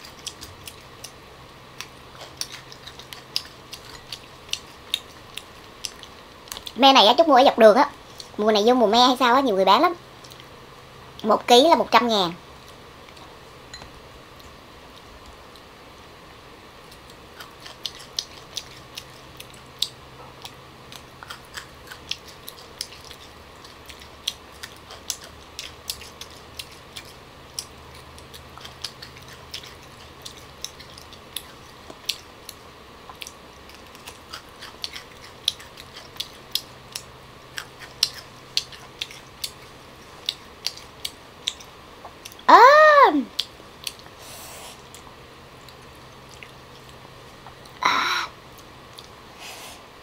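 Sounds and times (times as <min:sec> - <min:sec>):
chewing crunchy pods: 0:00.0 - 0:07.3, 0:16.8 - 0:42.5, 0:43.3 - 0:44.2, 0:44.8 - 0:47.8, 0:48.4 - 0:49.2.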